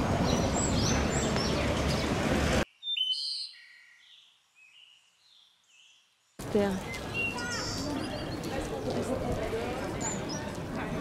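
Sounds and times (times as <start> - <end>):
outdoor background rush: 0.0 - 2.7, 6.3 - 11.0
small birds chirping: 0.2 - 11.0.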